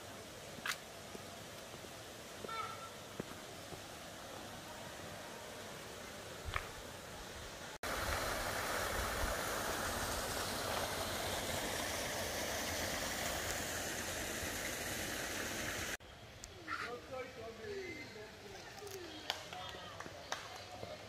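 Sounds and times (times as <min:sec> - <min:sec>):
flowing river water: 0:00.0 - 0:16.0.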